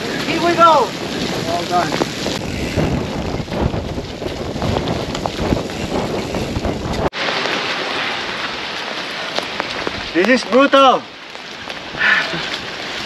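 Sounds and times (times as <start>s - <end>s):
wind buffeting microphone: 0.0s - 7.2s
bike tyres rattling on dirt: 0.0s - 13.0s
bike tyres through wet mud: 0.0s - 13.0s
rain hissing: 0.0s - 13.0s.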